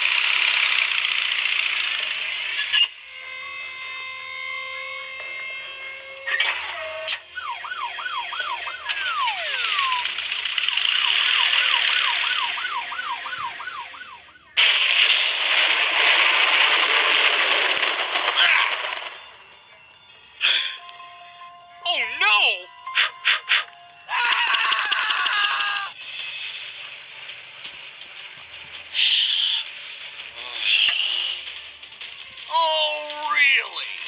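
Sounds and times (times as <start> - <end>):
siren sweeping: 2.8 - 26.0
steady held tones: 19.1 - 25.9.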